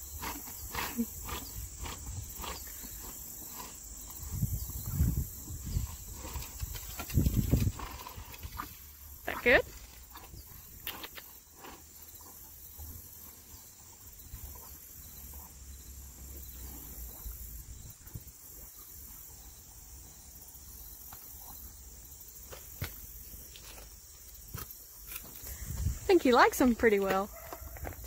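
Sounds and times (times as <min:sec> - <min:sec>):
insects chirring: 0:00.0 - 0:28.0
horse chewing crunchy treat: 0:00.1 - 0:08.9, 0:09.6 - 0:14.7, 0:27.3 - 0:28.0.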